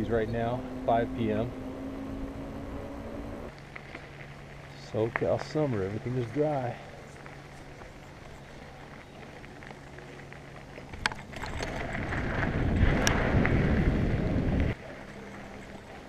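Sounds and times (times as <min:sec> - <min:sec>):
bike tyres rumbling on dirt: 0:00.0 - 0:16.0
wind rushing over microphone: 0:11.3 - 0:14.8.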